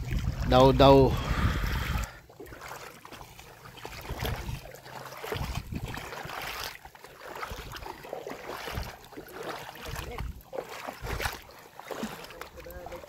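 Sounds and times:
wind buffeting microphone: 0:00.0 - 0:02.2, 0:04.0 - 0:04.7, 0:05.3 - 0:06.2, 0:08.6 - 0:09.0, 0:09.8 - 0:11.4
feet wading through water: 0:00.0 - 0:13.0.

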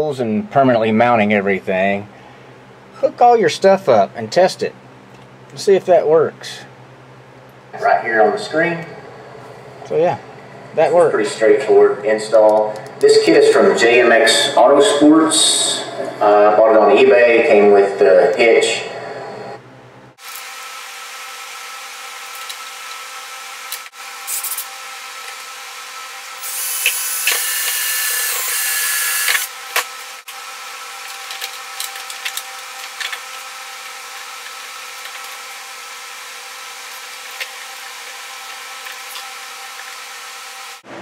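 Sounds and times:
steady background hum: 0:00.0 - 0:41.0
cordless drill drilling plastic: 0:26.5 - 0:29.5.

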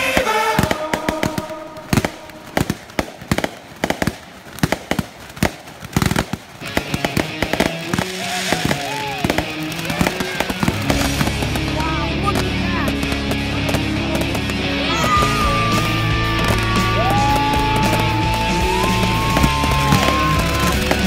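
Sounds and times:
music: 0:00.0 - 0:02.4, 0:06.6 - 0:21.0
fireworks popping and cracking: 0:00.0 - 0:21.0.

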